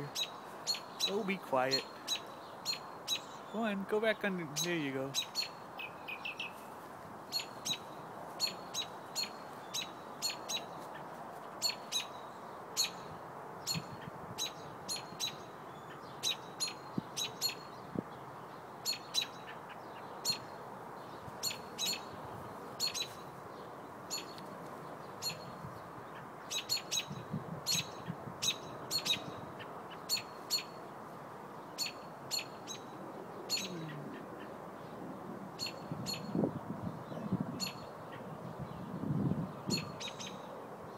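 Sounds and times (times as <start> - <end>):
robin alarm calls: 0.0 - 3.6, 4.5 - 6.6, 7.3 - 17.8, 18.8 - 20.6, 21.4 - 22.2, 22.8 - 23.2, 24.1 - 24.4, 25.1 - 30.8, 31.8 - 34.6, 35.6 - 36.4, 37.0 - 38.3, 39.6 - 40.5.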